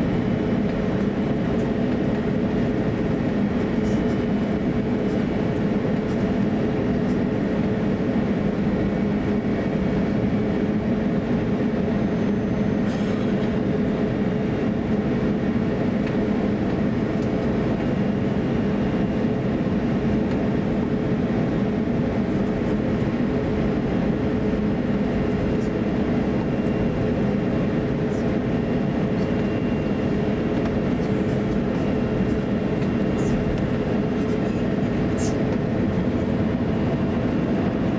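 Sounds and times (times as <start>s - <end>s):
aircraft cabin engine drone: 0.0s - 37.9s.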